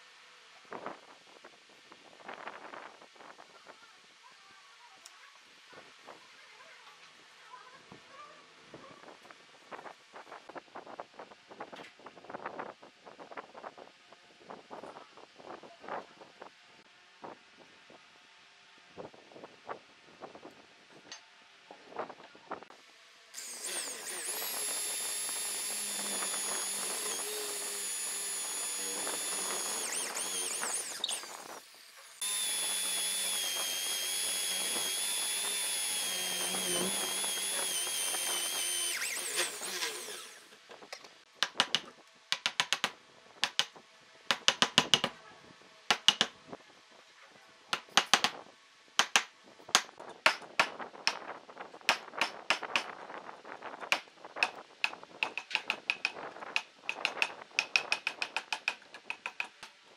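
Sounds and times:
power tool whining: 23.4 - 40.6
tool clicking and tapping on wood: 41.0 - 45.1, 45.9 - 46.3, 47.8 - 48.4, 49.0 - 51.2, 51.9 - 52.9, 53.9 - 59.8.

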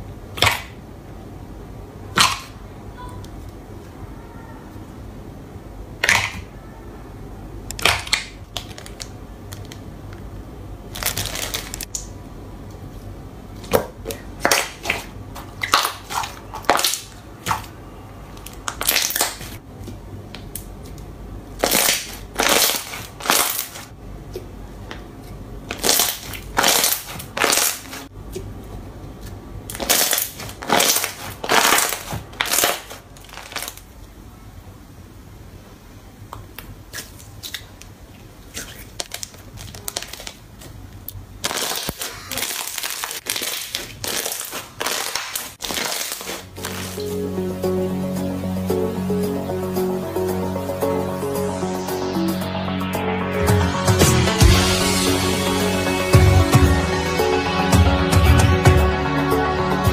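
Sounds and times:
slime squishing and crackling: 7.7 - 9.9, 10.9 - 12.1, 13.6 - 19.6, 21.6 - 23.9, 25.7 - 28.1, 29.7 - 33.9, 36.6 - 47.1.

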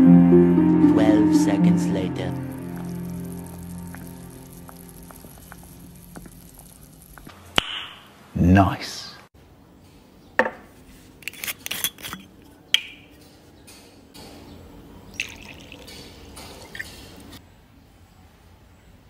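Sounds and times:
liquor pouring into shot glass: 15.1 - 17.0.

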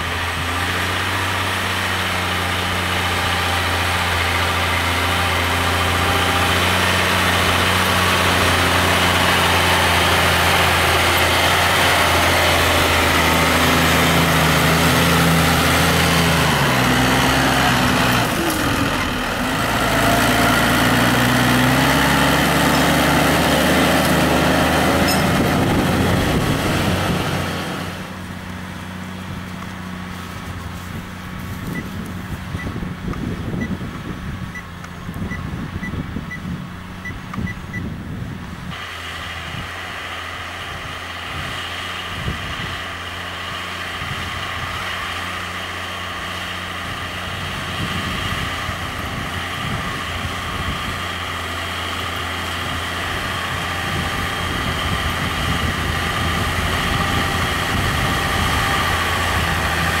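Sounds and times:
high engine whine: 0.0 - 60.0
tractor diesel engine running: 0.0 - 60.0
wind buffeting microphone: 23.4 - 27.9, 30.3 - 38.8, 40.7 - 43.0, 46.7 - 51.7, 52.4 - 60.0.

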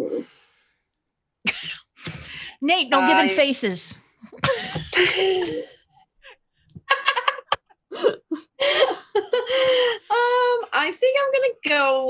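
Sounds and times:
people laughing: 4.4 - 5.8, 6.8 - 7.7.

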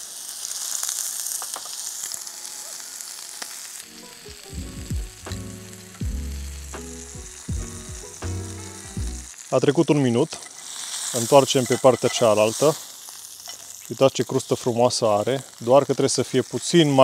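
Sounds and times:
steak sizzling in pan: 0.0 - 17.0
music with low bass line: 4.5 - 9.3.

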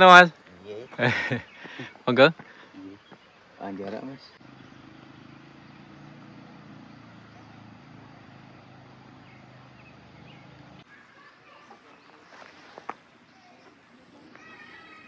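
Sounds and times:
faint chirps: 0.7 - 15.0
small engine humming: 4.4 - 10.8.

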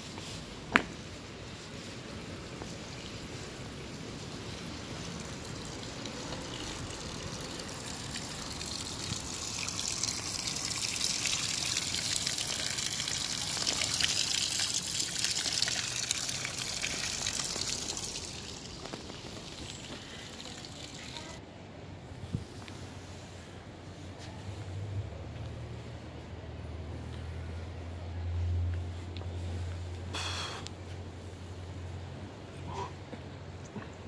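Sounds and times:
running splashing water: 2.4 - 21.4.

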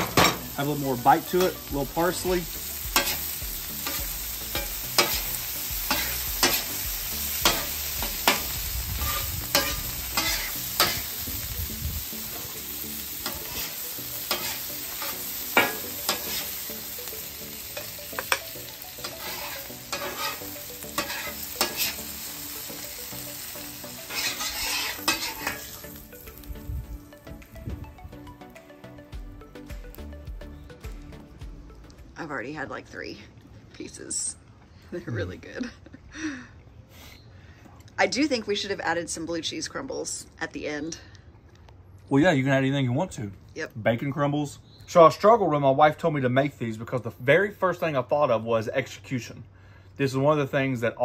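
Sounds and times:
meat sizzling on griddle: 0.0 - 27.1
metal spatula scraping steel plate: 7.4 - 11.1, 13.2 - 16.6, 19.0 - 22.1, 24.0 - 25.8.

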